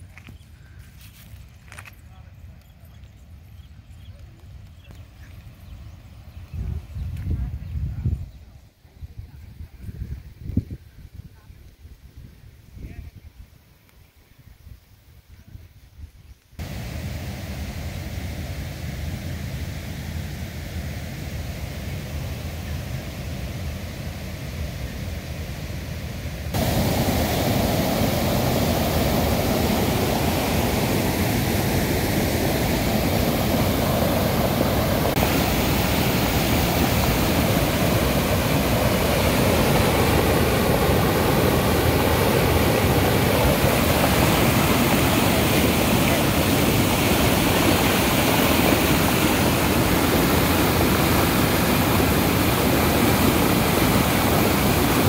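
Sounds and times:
water rushing over a weir: 16.6 - 55.0.

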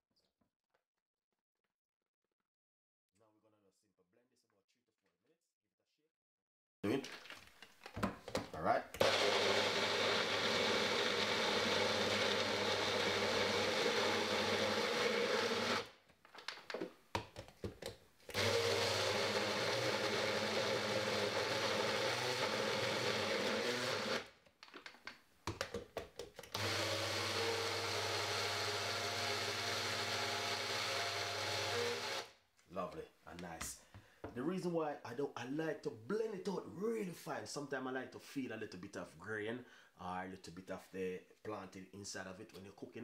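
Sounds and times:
blender motor running: 9.0 - 15.9, 18.3 - 24.3, 26.5 - 32.3.

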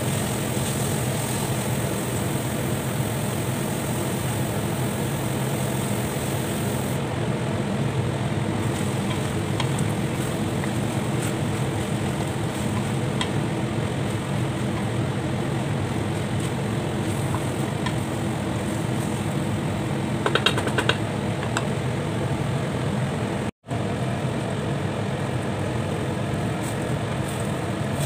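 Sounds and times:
even hiss: 0.0 - 7.0.

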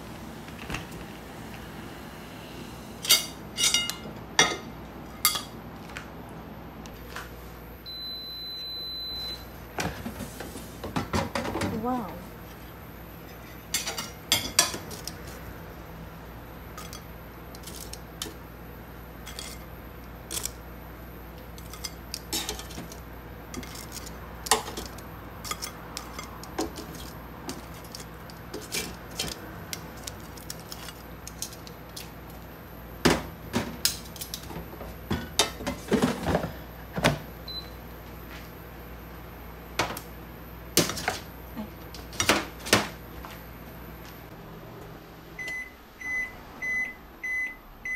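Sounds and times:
steady low hum: 0.0 - 47.8
dishes and utensils clinking: 3.0 - 5.6, 13.2 - 15.4, 16.8 - 18.4, 21.6 - 29.4.

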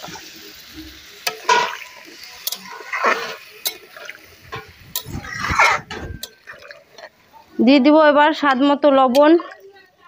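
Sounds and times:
metal spatula clinking on pan: 1.2 - 2.8, 3.6 - 3.9
liquid sloshing in a wok: 1.4 - 7.5.

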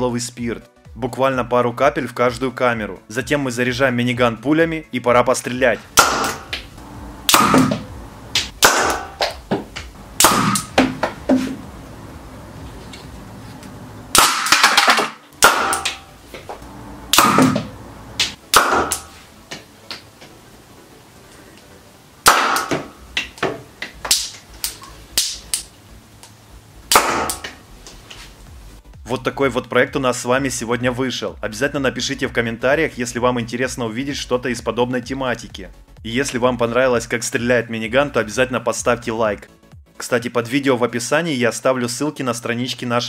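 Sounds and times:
sharp popping shots: 6.0 - 6.6, 7.3 - 9.5, 10.2 - 11.0, 14.1 - 16.1, 17.1 - 19.1, 22.2 - 22.9, 26.9 - 27.5.

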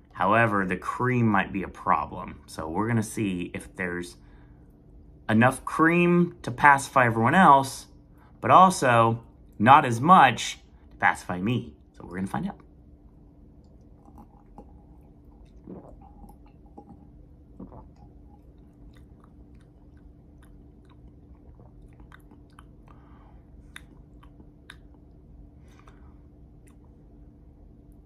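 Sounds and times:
low steady hum: 0.0 - 28.0
sip and swallow: 13.6 - 27.0
lip smacks and tongue clicks: 13.6 - 27.2
soft breaths: 22.7 - 24.0, 25.4 - 26.6.

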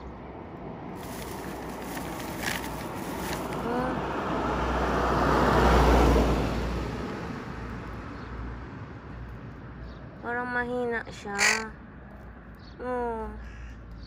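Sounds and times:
car passing by: 0.9 - 8.9.

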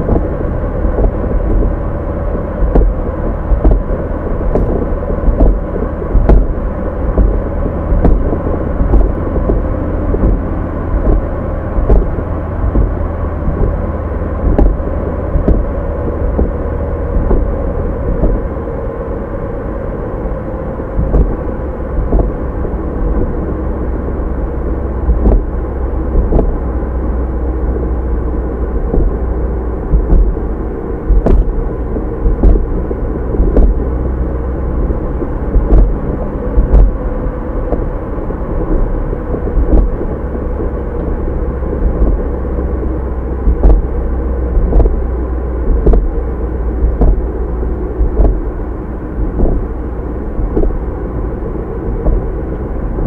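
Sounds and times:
short thumps and knocks: 0.0 - 1.8, 2.6 - 18.5, 21.0 - 21.4, 22.0 - 22.4, 25.1 - 25.5, 26.2 - 26.6, 28.9 - 29.2, 29.9 - 30.4, 31.1 - 34.1, 35.2 - 37.0, 37.7 - 37.9, 38.6 - 41.1, 41.7 - 42.8, 43.4 - 44.0, 44.6 - 45.1, 45.7 - 46.2, 46.8 - 47.3, 48.0 - 48.5, 49.2 - 49.7, 50.4 - 50.8, 51.9 - 52.6
car engine running: 0.0 - 53.0
road noise: 0.0 - 53.0.

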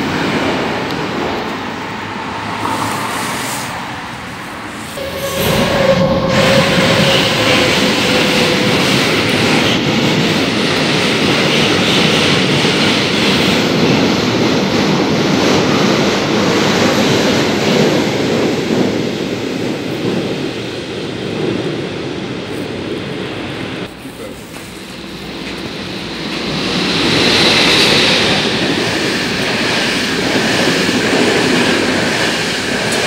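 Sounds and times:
train wheels rumbling on rails: 0.0 - 33.0
high wheel squeal: 4.9 - 9.6.

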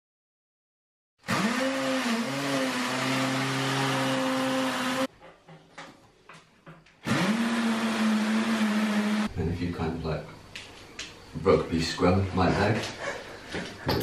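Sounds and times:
cordless drill boring into wall: 1.2 - 5.1, 7.0 - 9.3.

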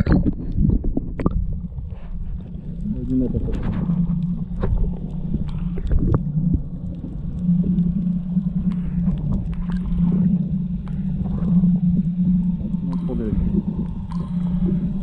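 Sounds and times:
underwater clicks and crackles: 0.0 - 15.0
underwater low hum: 0.0 - 15.0.

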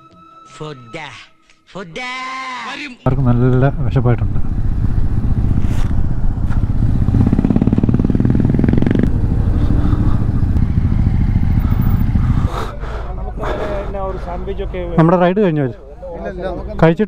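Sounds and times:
motorcycle engine running: 3.1 - 12.5.

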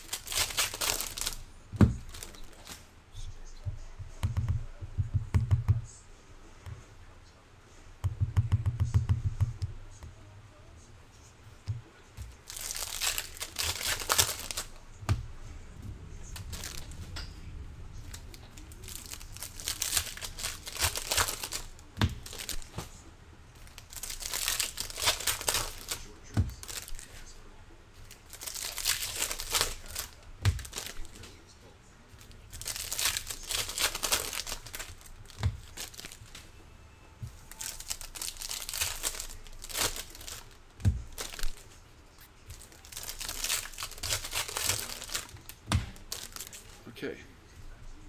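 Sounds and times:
foil wrappers tearing and crinkling: 0.0 - 1.4, 2.0 - 2.8, 12.4 - 14.8, 16.3 - 17.0, 18.1 - 22.8, 23.6 - 27.2, 28.0 - 31.2, 32.2 - 36.4, 37.5 - 46.7.

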